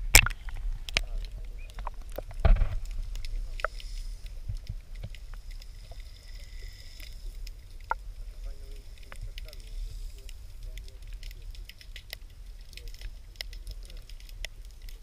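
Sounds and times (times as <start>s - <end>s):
low underwater rumble: 0.0s - 15.0s
water splashing: 0.0s - 15.0s.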